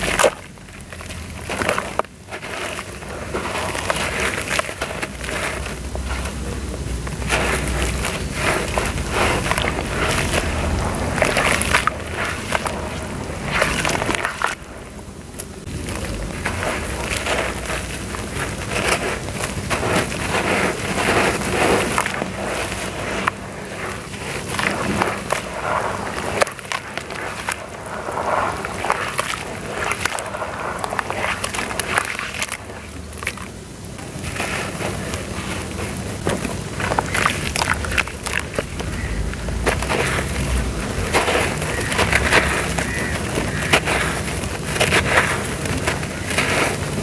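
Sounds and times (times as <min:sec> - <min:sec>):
clumps crackling apart: 0:00.0 - 0:47.0
hands splashing in water: 0:07.1 - 0:14.7, 0:15.8 - 0:33.5, 0:36.3 - 0:47.0.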